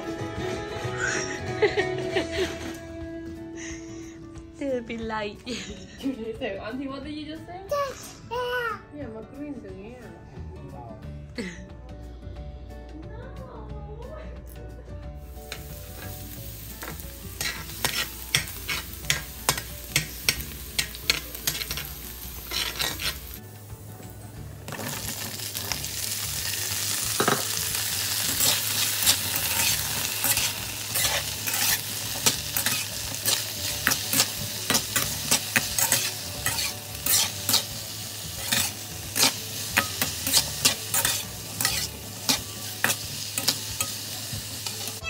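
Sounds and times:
food sizzling in a pan: 15.2 - 45.0.

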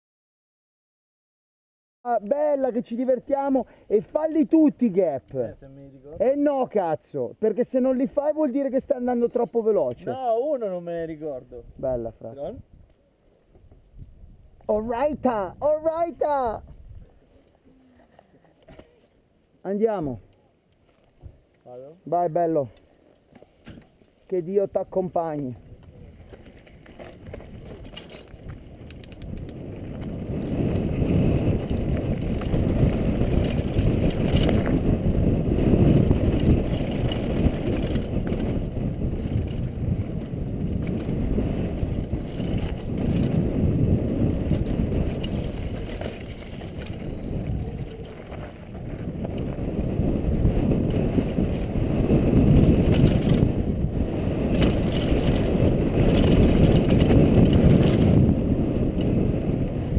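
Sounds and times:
wind rushing over camera: 2.1 - 17.3, 23.7 - 59.9
bike tyres rumbling on gravel: 25.8 - 59.9.

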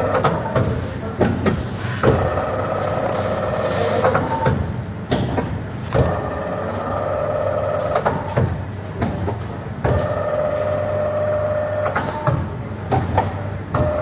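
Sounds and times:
sharp mechanical knocks: 0.0 - 2.6, 4.0 - 6.3, 7.8 - 10.3, 11.8 - 14.0
machine humming: 5.7 - 8.5, 9.8 - 12.7, 13.6 - 14.0.

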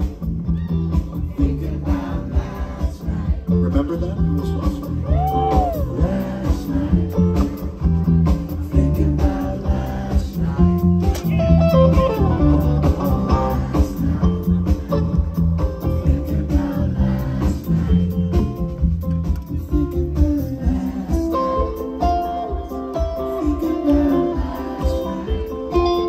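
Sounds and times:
bass and drums: 0.0 - 26.0
lead guitar with bent notes: 10.6 - 16.0.

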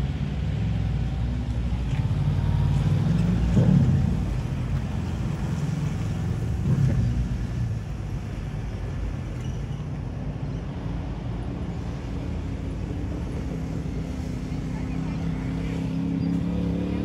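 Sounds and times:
low engine hum: 0.0 - 17.0
motorcycle passing: 13.8 - 17.0.

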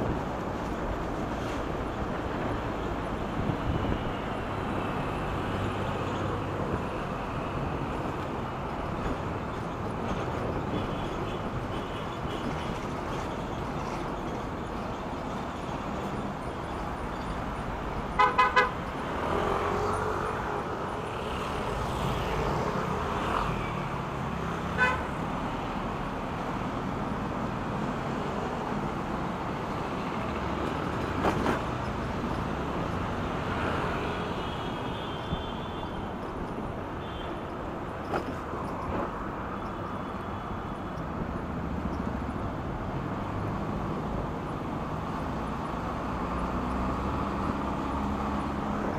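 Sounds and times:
road and traffic noise: 0.0 - 48.9
vehicle horn beeping: 18.1 - 18.8, 24.8 - 25.1.

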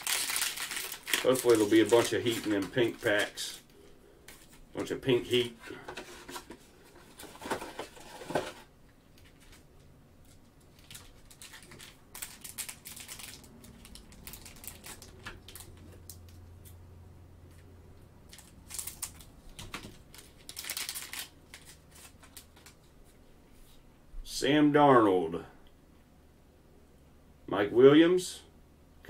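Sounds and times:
plastic wrapper crinkling and tearing: 0.0 - 3.6, 10.2 - 16.4, 18.3 - 22.9.

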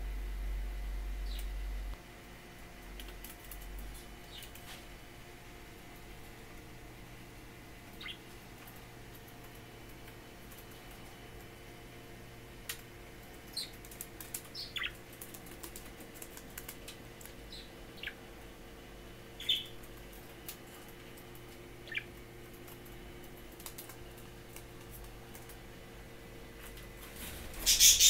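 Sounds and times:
budgerigar chirps: 8.0 - 8.2, 21.8 - 22.1, 27.7 - 28.0.

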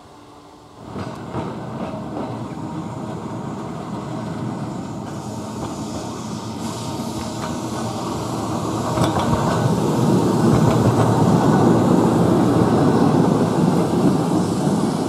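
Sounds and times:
tram wheels rumbling on rails: 0.0 - 15.0
brief clicks of tram wheels: 0.8 - 2.9, 3.9 - 12.2.

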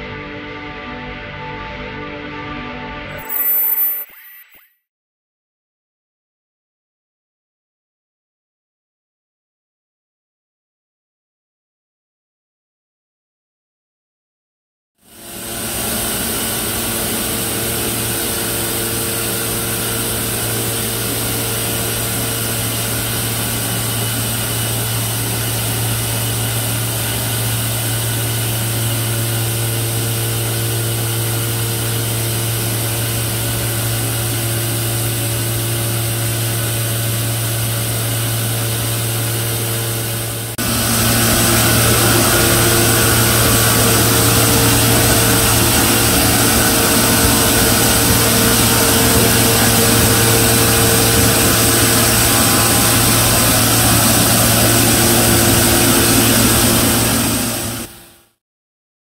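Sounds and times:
shot blaster motor hum: 15.1 - 58.2.

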